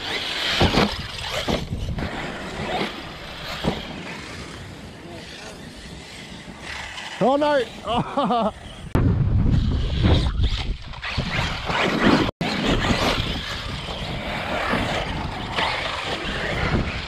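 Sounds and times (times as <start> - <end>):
electric rc truck running: 0.0 - 17.0
wind rumble on microphone: 0.6 - 2.5, 8.8 - 11.7, 12.4 - 17.0.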